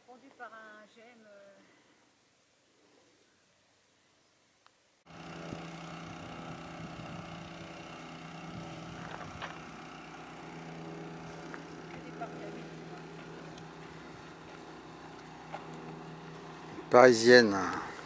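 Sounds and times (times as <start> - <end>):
engine hum with low drone: 5.1 - 18.0.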